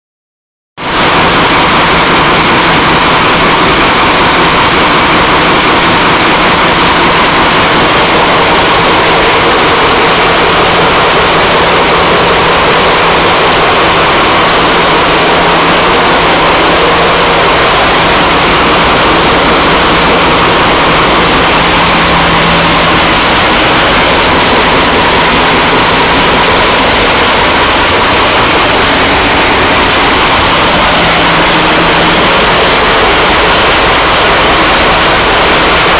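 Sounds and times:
diesel engines idling: 0.9 - 35.9.

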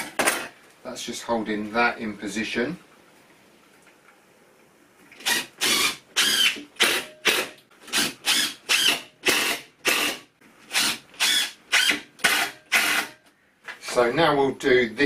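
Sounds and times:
workshop tool mechanical strokes: 5.2 - 13.1.

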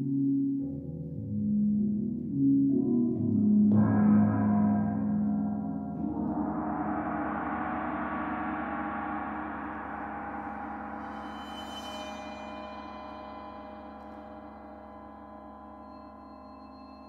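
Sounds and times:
shimmering metallic ring: 6.2 - 17.0
high metallic sizzle: 6.8 - 17.0.

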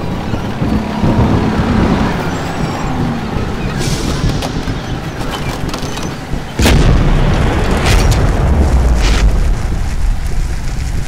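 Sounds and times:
low rumble: 0.0 - 11.0
deep boom: 6.5 - 10.3.

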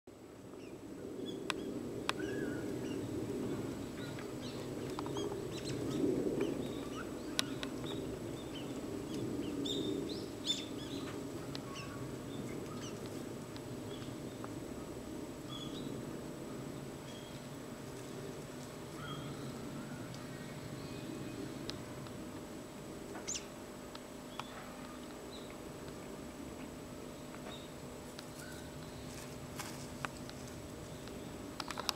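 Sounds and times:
low background noise: 0.1 - 31.9
birds chirping: 0.6 - 14.5, 16.7 - 22.0.

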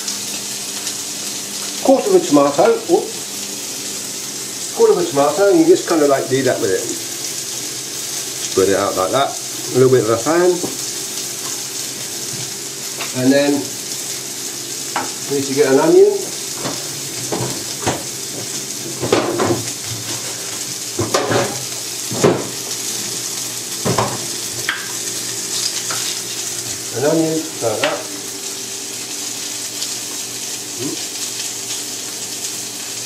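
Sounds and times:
chicken sizzling in a pan: 0.0 - 33.0
knife knocking on chopping board: 16.6 - 19.6, 23.8 - 24.2.

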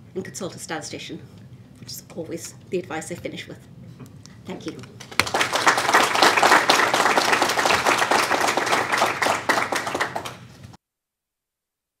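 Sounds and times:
audience applauding: 5.0 - 10.5.

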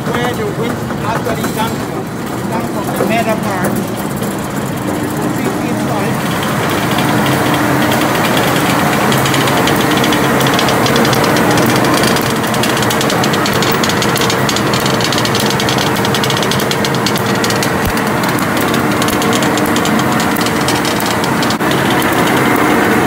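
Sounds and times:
machinery humming and rattling: 0.0 - 23.0.

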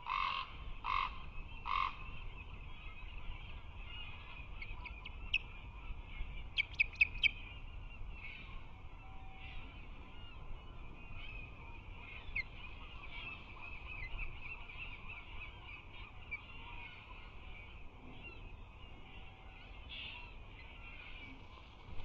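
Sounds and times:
osprey chirping: 3.8 - 8.6, 9.6 - 17.8.

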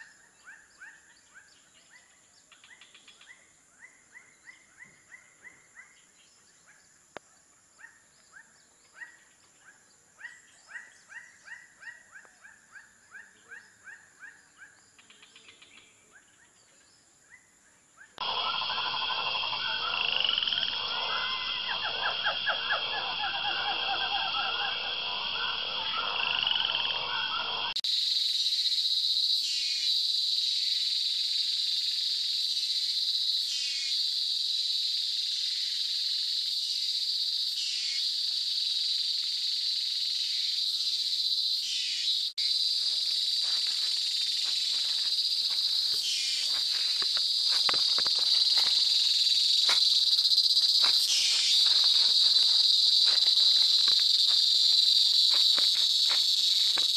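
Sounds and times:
insect chirps: 0.0 - 56.9
frogs trilling: 18.2 - 56.9
high insect drone: 18.2 - 56.9.

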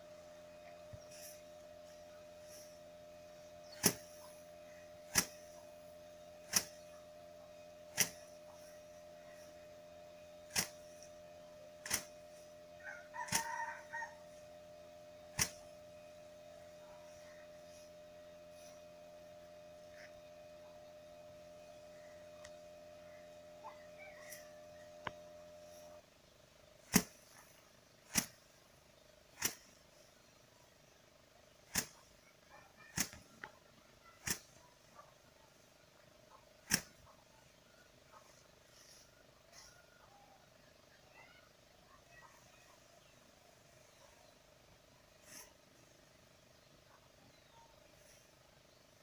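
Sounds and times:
rice sheaves whacking slab: 1.0 - 2.8, 3.4 - 7.0, 7.9 - 9.7, 10.4 - 11.1, 11.8 - 12.4, 13.2 - 14.4, 15.2 - 15.8, 26.8 - 28.4, 29.3 - 29.8, 31.6 - 32.1, 32.8 - 33.3, 34.2 - 34.6, 36.6 - 37.0
rooster crowing: 12.0 - 15.2, 23.2 - 26.0
rice stalks thwacking stone: 26.9 - 27.2.

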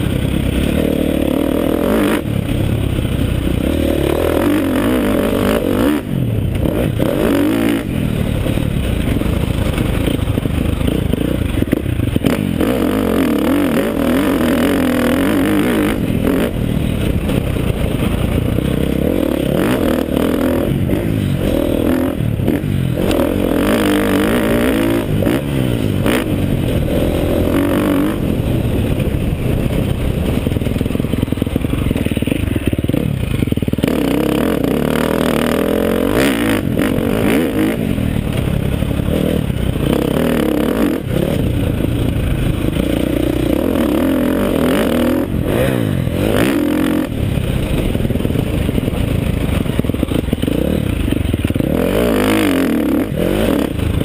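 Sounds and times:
dirt bike engine revving: 0.0 - 54.0
wind noise: 14.0 - 33.4.

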